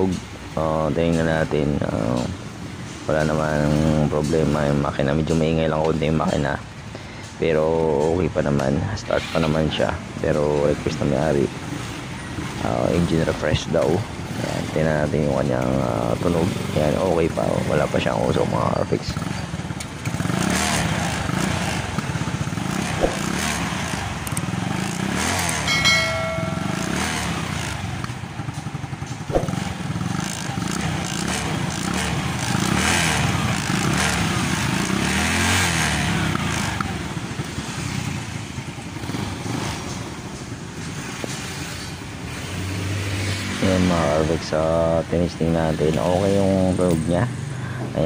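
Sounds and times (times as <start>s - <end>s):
scooter engine running: 19.2s - 41.1s.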